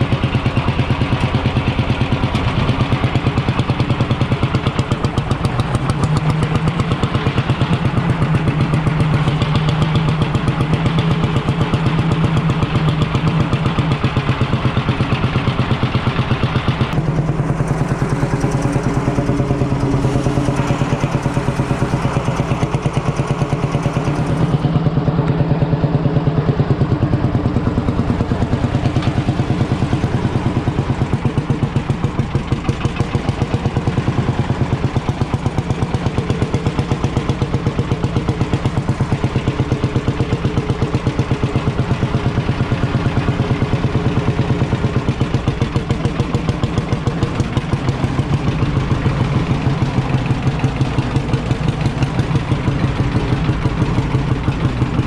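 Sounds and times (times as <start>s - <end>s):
tractor engine thumping: 0.0s - 55.0s.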